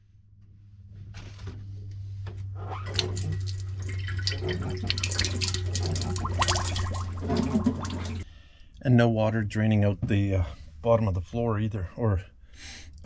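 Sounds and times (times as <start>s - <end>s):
water splashing into steel sink: 2.8s - 8.2s.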